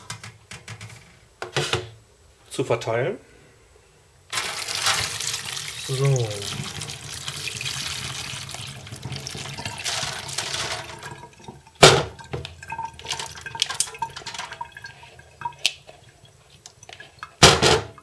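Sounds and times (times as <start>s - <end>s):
water dripping from a sieve: 4.3s - 17.4s
brine splashing into a sink: 4.3s - 18.0s.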